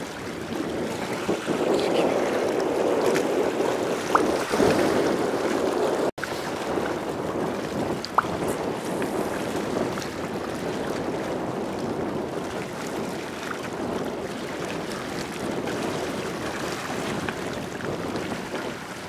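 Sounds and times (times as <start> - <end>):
sea water lapping: 0.0 - 19.0
wind: 0.0 - 19.0.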